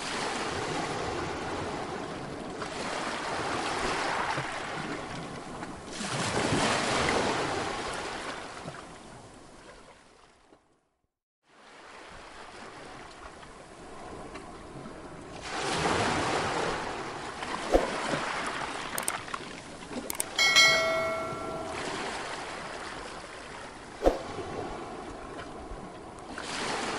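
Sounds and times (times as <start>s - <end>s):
waves breaking over rocks: 11.8s - 20.0s, 24.3s - 26.9s
sharp clicks: 19.0s - 19.2s, 20.1s - 20.4s
notification chime: 20.2s - 22.0s.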